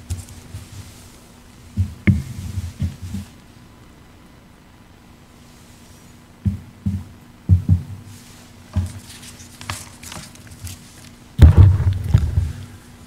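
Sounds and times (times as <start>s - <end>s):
paper rustling: 8.2s - 11.2s
loud thump: 11.4s - 12.7s.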